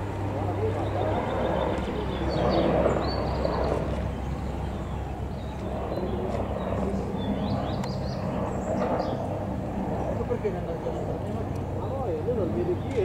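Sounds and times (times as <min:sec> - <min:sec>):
murmur of voices: 0:00.0 - 0:13.0
vehicle engines humming: 0:00.0 - 0:13.0
bird chirps: 0:00.8 - 0:09.3.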